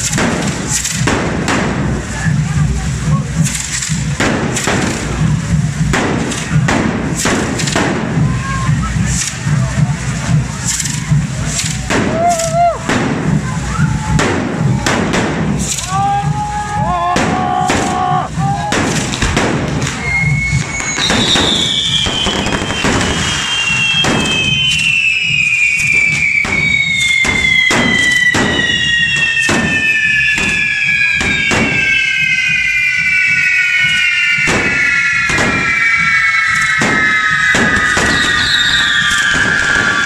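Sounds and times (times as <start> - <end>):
firework bangs: 0.0 - 40.0
fireworks whistling: 0.0 - 40.0.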